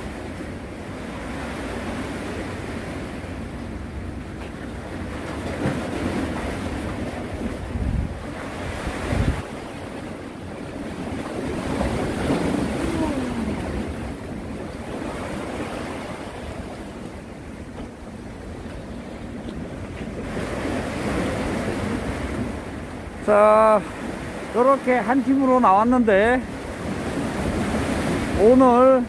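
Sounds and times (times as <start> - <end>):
sea waves washing against concrete: 0.0 - 29.0
wind buffeting microphone: 4.9 - 23.2.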